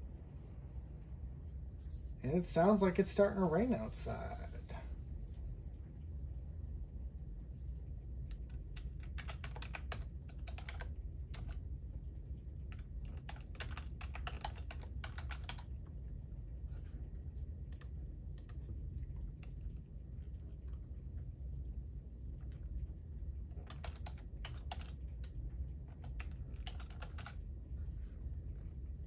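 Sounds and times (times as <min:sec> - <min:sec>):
typing on keyboard: 0:08.3 - 0:11.6, 0:12.7 - 0:15.7, 0:17.7 - 0:18.7, 0:23.5 - 0:27.4.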